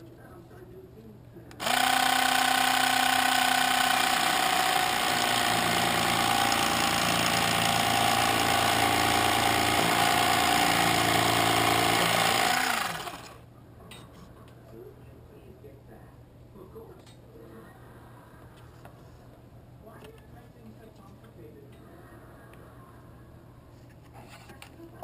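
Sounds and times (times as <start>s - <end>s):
small motor buzzing: 1.6s - 13.4s.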